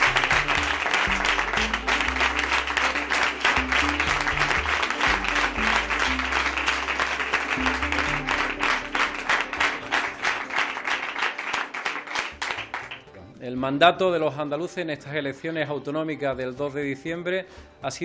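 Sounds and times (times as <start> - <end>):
music with deep bass line: 0.0 - 10.4
crowd applauding: 0.0 - 13.2.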